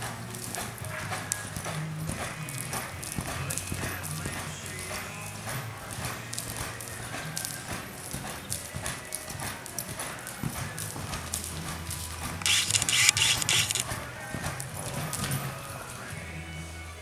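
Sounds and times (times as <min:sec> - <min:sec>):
hoofbeats on sand: 0:00.0 - 0:16.3
background music: 0:00.0 - 0:17.0.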